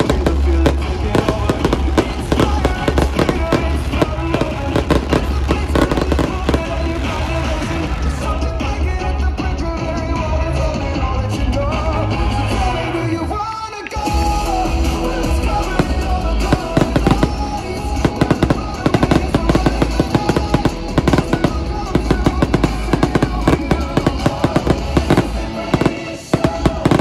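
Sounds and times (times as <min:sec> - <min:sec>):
fireworks popping and bursting: 0:00.0 - 0:08.6, 0:15.3 - 0:27.0
loud music with heavy bass: 0:00.0 - 0:27.0.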